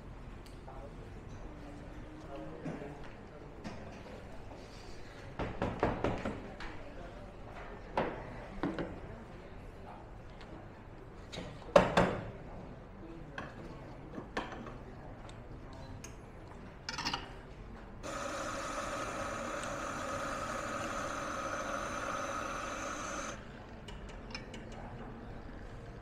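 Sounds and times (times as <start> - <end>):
machine running: 18.0 - 23.4.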